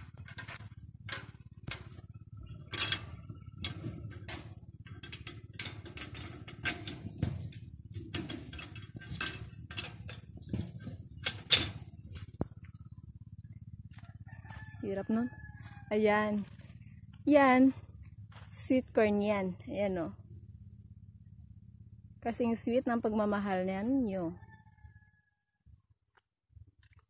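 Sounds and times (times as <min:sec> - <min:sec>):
metal gate clinking and rattling: 0:00.0 - 0:12.7.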